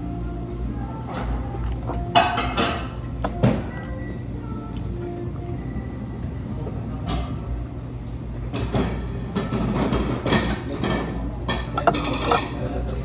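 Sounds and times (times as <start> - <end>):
low room hum: 0.0 - 13.0
crackly chewing: 1.2 - 2.2, 3.2 - 5.7.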